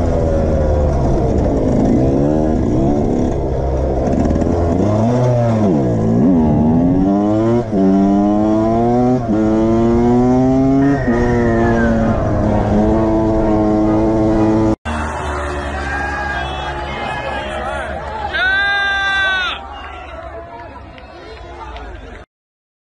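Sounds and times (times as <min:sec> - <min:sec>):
dirt bike engine revving: 0:00.0 - 0:17.4.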